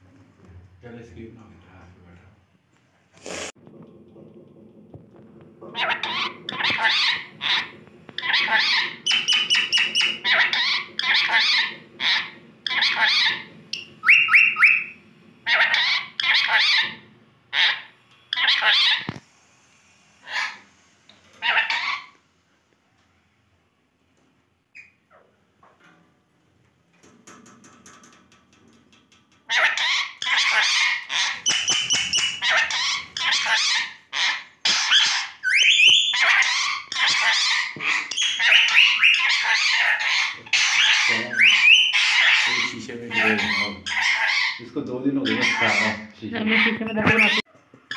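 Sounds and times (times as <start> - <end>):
parakeet chattering: 5.8 - 19.1, 29.5 - 47.9
parakeet rising chirps: 8.2 - 16.8, 30.4 - 44.6
parakeet rising whistles: 13.8 - 15.0, 35.4 - 36.2.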